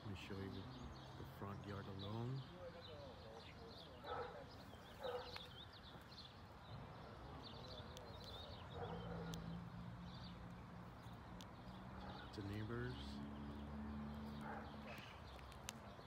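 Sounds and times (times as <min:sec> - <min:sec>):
small birds chirping: 0:00.0 - 0:16.0
faint clicks: 0:10.5 - 0:11.6, 0:14.9 - 0:16.0.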